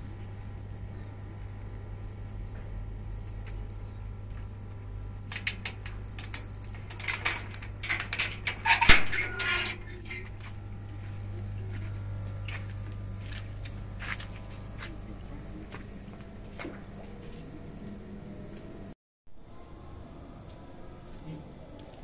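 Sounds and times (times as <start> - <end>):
keys jangling: 0.0 - 10.3
metal gate clinking and rattling: 0.0 - 10.4
low hum: 0.0 - 22.0
sharp metal clank: 8.4 - 9.8.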